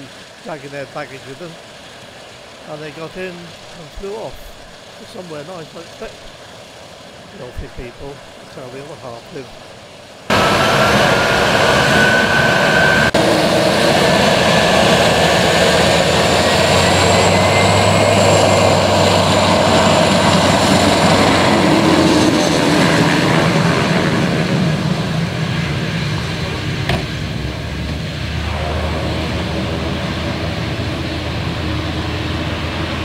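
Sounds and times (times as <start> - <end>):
propeller roar: 0.0 - 33.0
turboprop engine whine: 0.0 - 33.0
high rising tone: 10.3 - 22.6, 27.1 - 33.0.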